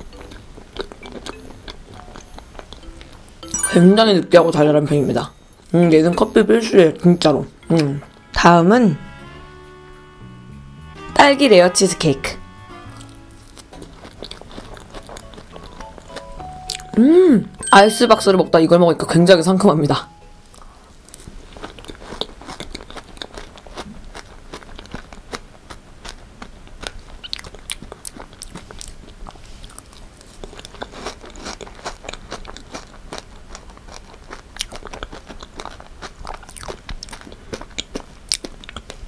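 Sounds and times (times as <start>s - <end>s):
biting: 12.9s - 16.9s, 21.1s - 39.0s
close chewing mouth clicks: 13.0s - 16.9s, 21.6s - 39.0s.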